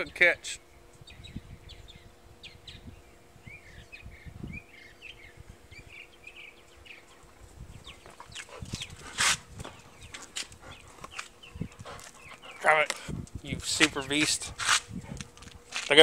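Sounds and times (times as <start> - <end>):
small birds chirping: 0.0 - 15.4
low rumble on microphone: 0.9 - 15.7.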